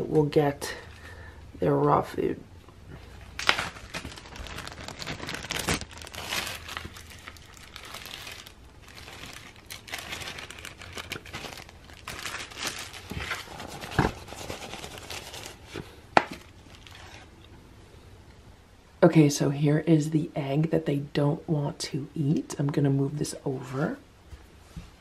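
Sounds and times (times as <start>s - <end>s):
plastic bag crinkling: 3.0s - 17.4s.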